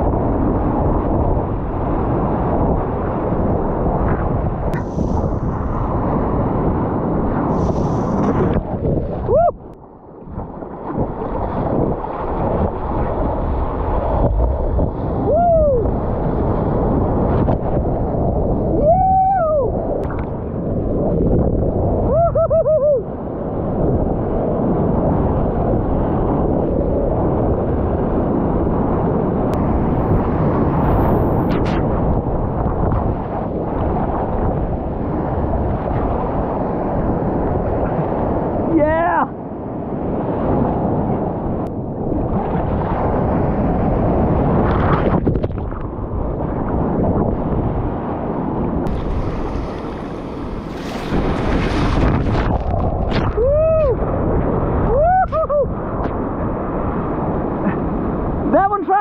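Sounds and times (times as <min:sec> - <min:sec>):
surf crashing: 0:00.0 - 0:59.0
paddle splashing spray: 0:07.5 - 0:08.8, 0:48.9 - 0:53.5
short pitched whoops: 0:09.2 - 0:09.7, 0:15.2 - 0:16.0, 0:18.7 - 0:19.8, 0:22.1 - 0:23.1, 0:53.2 - 0:54.1, 0:54.8 - 0:55.8.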